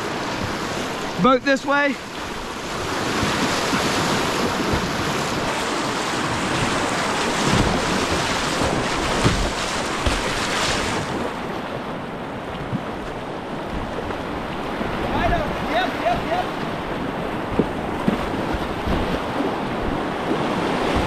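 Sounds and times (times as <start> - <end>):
rushing whitewater: 0.0 - 21.0
dull low thumps: 17.4 - 19.2.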